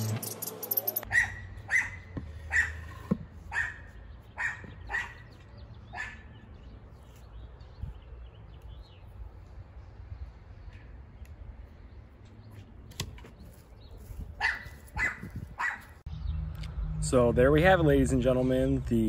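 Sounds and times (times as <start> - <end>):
dog barking: 1.1 - 2.8, 3.5 - 5.3, 5.9 - 6.3, 14.4 - 16.0.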